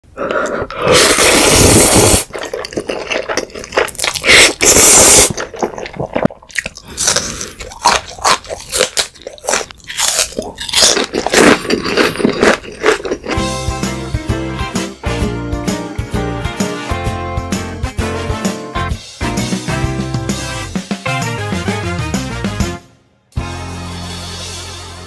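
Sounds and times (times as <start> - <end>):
man slurping noodles: 0.0 - 7.8
wet chewing and smacking: 2.2 - 13.4.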